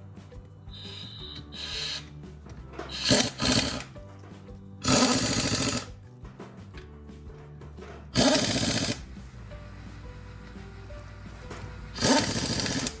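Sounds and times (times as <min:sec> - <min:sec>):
pneumatic impact wrench bursts: 0:00.8 - 0:02.1, 0:02.9 - 0:03.9, 0:04.8 - 0:05.9, 0:08.2 - 0:09.1, 0:11.9 - 0:13.0.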